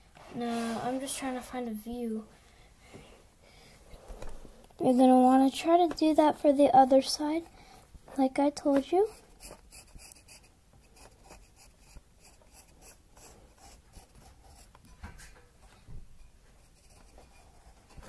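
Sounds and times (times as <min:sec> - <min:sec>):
pen scratching on paper: 0:08.7 - 0:14.8, 0:16.6 - 0:18.0.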